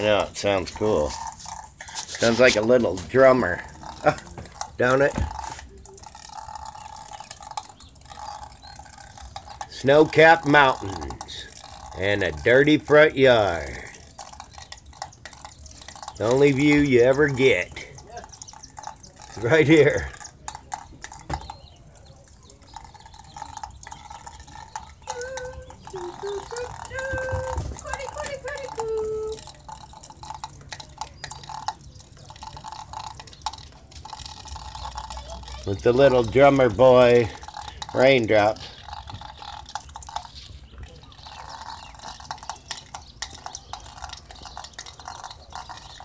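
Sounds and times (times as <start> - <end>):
water drops dripping: 0.0 - 46.0.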